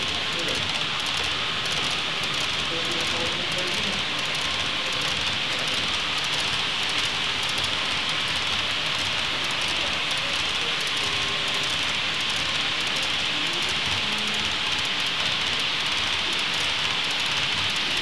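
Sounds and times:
faint voices: 0.0 - 6.1, 8.7 - 16.8
model trains running: 0.0 - 18.0.

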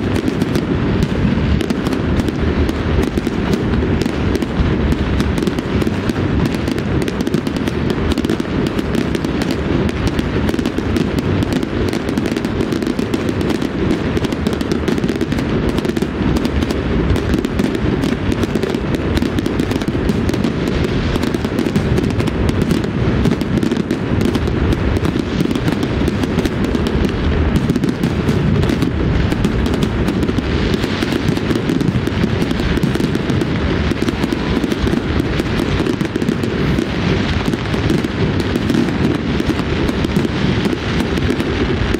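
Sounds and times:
fireworks banging and crackling: 0.0 - 41.9
heavy low rumble: 13.7 - 41.9.

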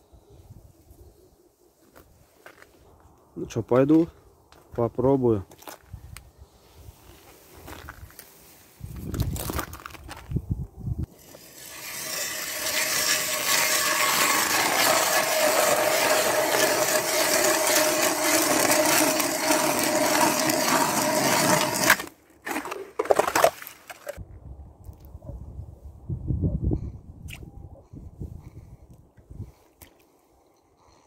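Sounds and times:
ice auger grinding through ice: 11.1 - 23.5.

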